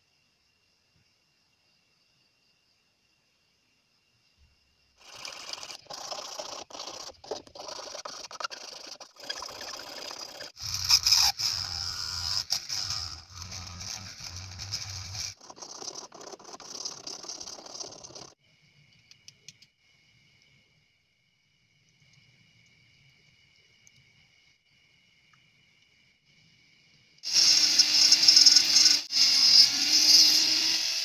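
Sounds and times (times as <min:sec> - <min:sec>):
mini grinder grinding plastic: 0:05.0 - 0:18.4
steel file rasping on plastic: 0:05.0 - 0:18.4
tools scraping plastic: 0:05.0 - 0:18.4.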